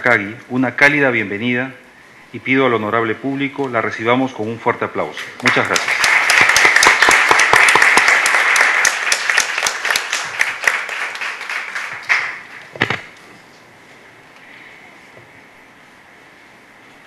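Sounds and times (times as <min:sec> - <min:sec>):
audience applauding: 0:05.4 - 0:12.9.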